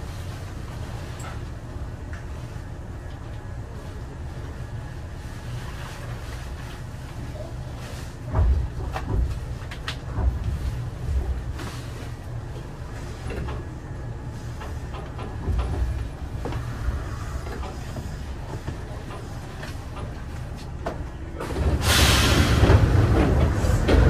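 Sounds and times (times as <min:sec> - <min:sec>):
train low hum: 0:00.0 - 0:24.0
loud rush of hissing: 0:21.8 - 0:22.7.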